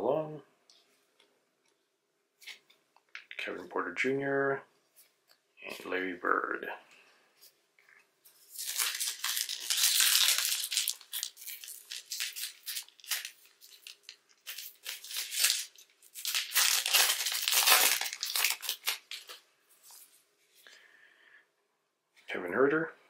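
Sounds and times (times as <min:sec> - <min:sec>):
card pack wrapper tearing and crinkling: 0:08.5 - 0:19.4.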